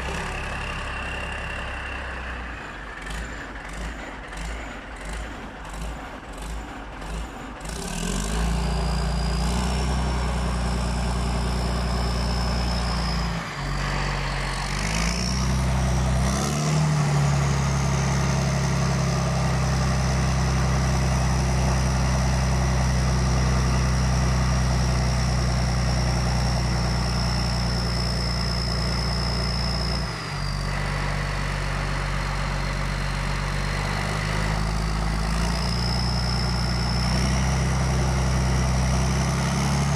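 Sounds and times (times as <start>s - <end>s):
diesel engine revving: 0.0s - 39.9s
turbocharger whistle: 11.5s - 16.7s, 24.4s - 31.3s.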